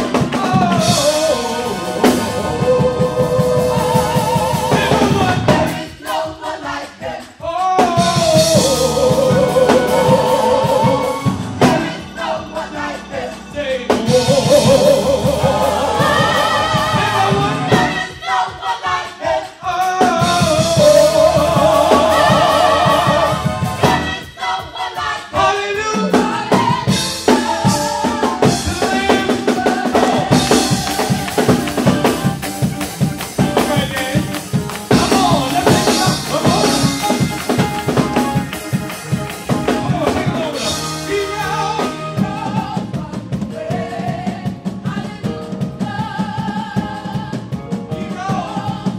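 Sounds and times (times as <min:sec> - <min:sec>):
man singing: 0:00.0 - 0:05.8, 0:07.4 - 0:16.1, 0:19.6 - 0:23.6, 0:28.4 - 0:30.8, 0:33.4 - 0:38.3, 0:39.5 - 0:44.2
backing singers: 0:00.0 - 0:48.9
drums steady beat: 0:00.0 - 0:48.9.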